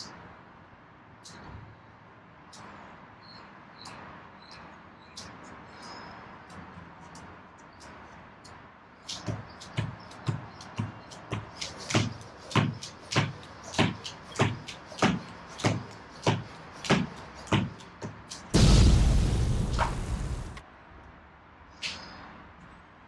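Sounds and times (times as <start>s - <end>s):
beaded jump rope clacking on tile: 6.5s - 18.5s
loud burst of noise: 18.6s - 20.6s.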